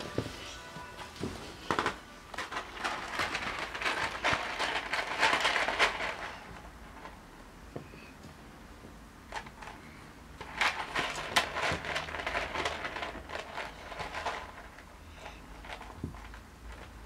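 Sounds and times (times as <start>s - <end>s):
box of treats rattling: 1.6s - 7.2s, 10.4s - 17.0s.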